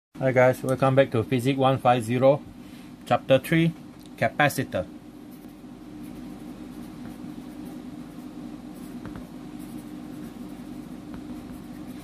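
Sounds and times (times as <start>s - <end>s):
low electrical hum: 0.2s - 12.0s
pen scratching while writing: 5.3s - 12.0s.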